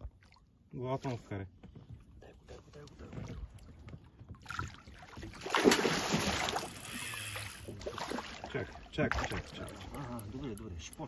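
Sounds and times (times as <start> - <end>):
fish thrashing water: 4.4 - 9.9.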